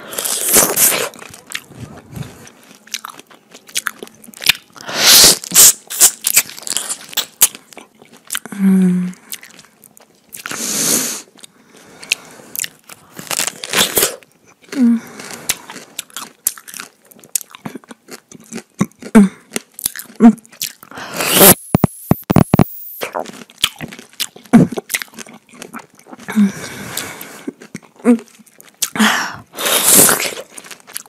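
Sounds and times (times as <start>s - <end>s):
wet chewing and lip-smacking: 0.3s - 4.8s, 5.4s - 8.6s, 9.2s - 10.6s, 11.3s - 13.4s, 15.4s - 20.9s, 21.8s - 26.3s, 26.9s - 29.0s, 30.2s - 31.0s.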